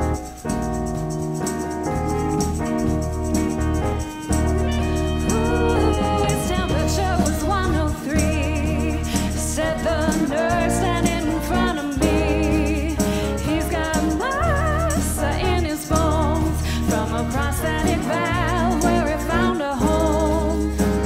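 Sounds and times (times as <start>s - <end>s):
band with steady bass line: 0.0s - 21.0s
women singing with vibrato: 5.2s - 21.0s.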